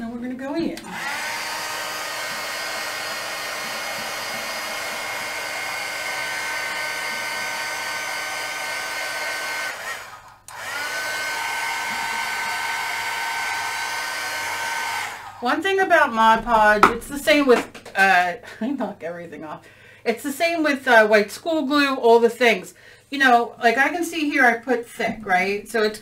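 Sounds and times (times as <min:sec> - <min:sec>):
heat tool fan whining: 0:00.8 - 0:17.7.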